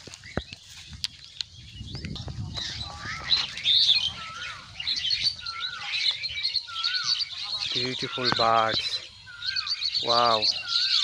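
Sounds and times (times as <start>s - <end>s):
small birds chirping: 0.0s - 11.0s
whistled bird call: 1.6s - 11.0s.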